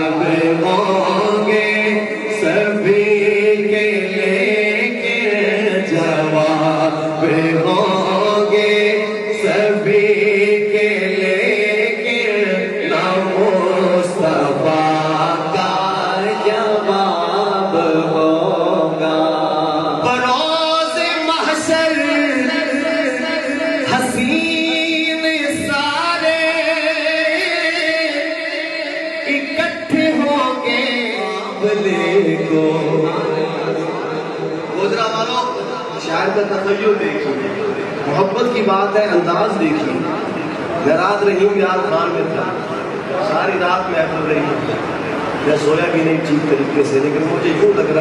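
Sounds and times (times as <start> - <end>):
man singing unaccompanied: 0.0 - 35.8
man chanting devotional poem: 0.0 - 48.0.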